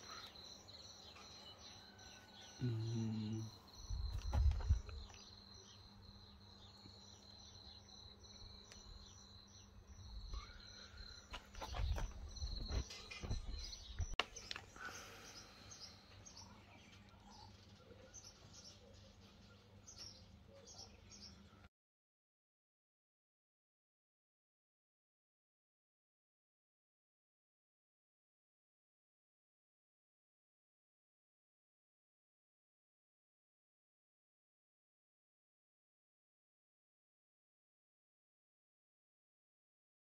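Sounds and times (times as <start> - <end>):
bird chirps: 0.0 - 21.7
low bumps and rumbles: 3.9 - 5.1.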